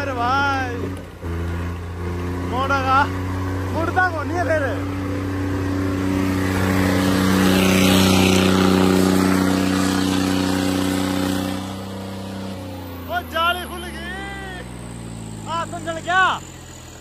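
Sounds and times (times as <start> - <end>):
tractor engines running: 0.0 - 17.0.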